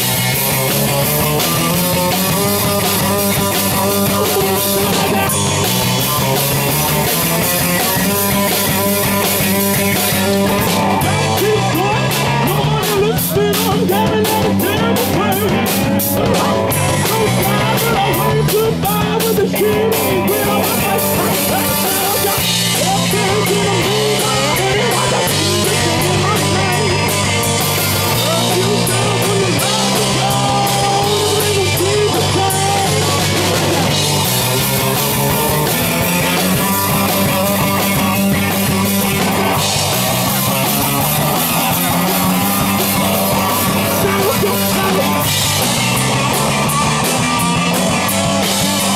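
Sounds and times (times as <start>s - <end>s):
bass line: 0.0s - 48.9s
drum kit with cymbals: 0.0s - 48.9s
electric guitar: 0.0s - 48.9s
person singing into microphone: 11.0s - 27.3s, 28.1s - 33.2s, 43.4s - 45.3s.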